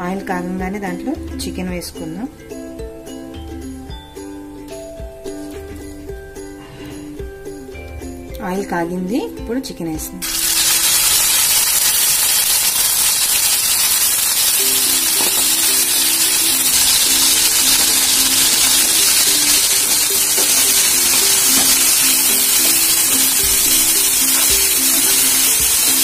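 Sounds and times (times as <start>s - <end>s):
background music tune: 0.0s - 26.0s
chicken sizzling in oil: 10.2s - 26.0s.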